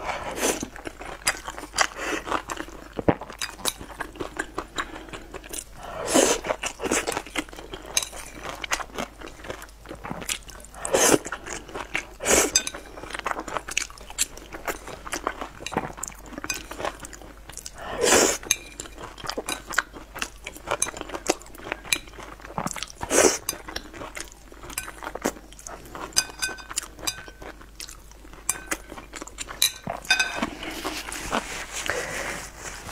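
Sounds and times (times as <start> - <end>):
wet chewing: 0.0 - 32.2
chopsticks clinking on ceramic bowl: 12.5 - 12.9, 16.4 - 16.9, 26.1 - 27.5, 28.4 - 30.7.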